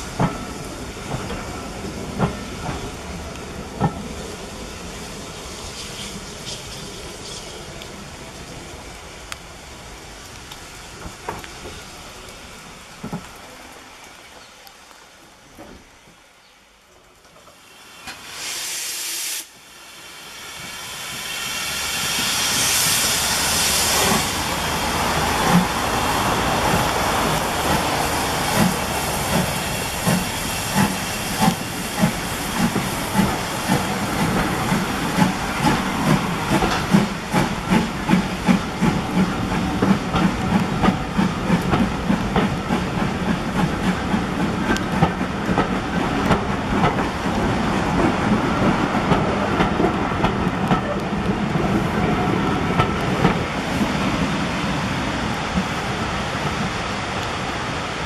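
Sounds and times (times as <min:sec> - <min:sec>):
steam hissing: 0:00.0 - 0:13.6, 0:17.6 - 0:58.0
train rhythmic beat: 0:26.6 - 0:47.0.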